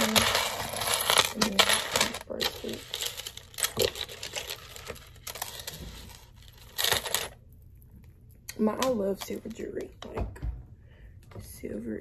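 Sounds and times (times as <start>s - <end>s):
jewelry clinking: 0.0s - 7.4s
rustling: 0.0s - 7.4s.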